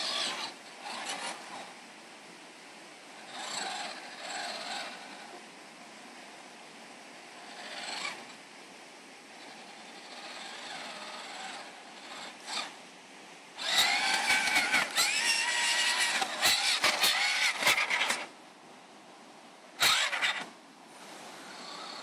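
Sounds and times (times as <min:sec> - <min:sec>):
electric motor whining: 0:00.0 - 0:01.6, 0:07.4 - 0:08.3, 0:09.5 - 0:12.8, 0:13.6 - 0:18.3, 0:19.8 - 0:20.5.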